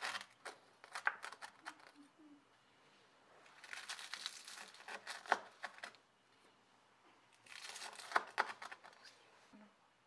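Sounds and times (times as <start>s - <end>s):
knife crunching through pastry: 0.0s - 1.9s, 3.5s - 6.0s, 7.4s - 9.0s.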